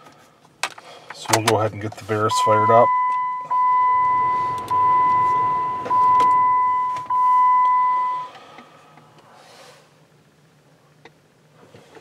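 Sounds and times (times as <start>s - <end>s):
electronic chime tone: 2.4s - 8.3s.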